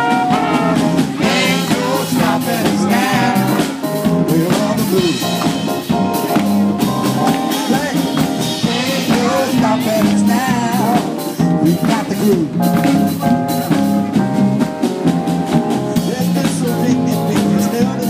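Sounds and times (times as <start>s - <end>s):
brass band playing: 0.0s - 18.0s
man singing into a microphone: 1.2s - 5.4s, 8.6s - 12.6s, 15.9s - 18.0s.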